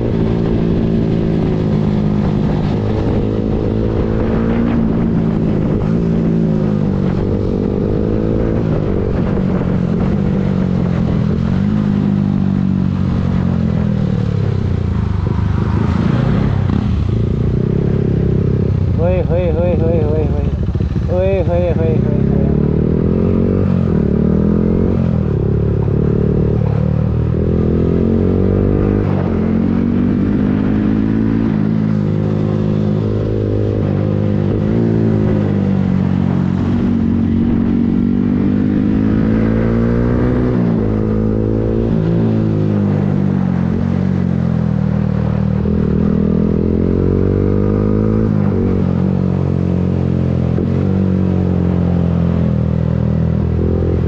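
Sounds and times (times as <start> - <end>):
wind noise: 0.0 - 19.2
motorcycle engine revving: 0.0 - 54.0.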